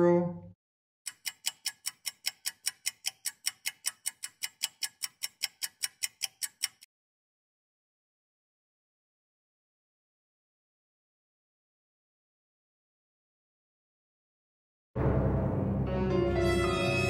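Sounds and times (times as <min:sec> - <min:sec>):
fast clock ticking: 0:01.1 - 0:06.9.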